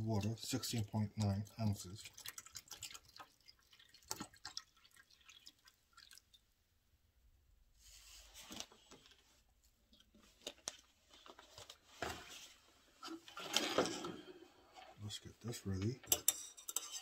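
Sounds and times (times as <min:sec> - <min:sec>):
water trickling into pot: 0:00.0 - 0:06.5.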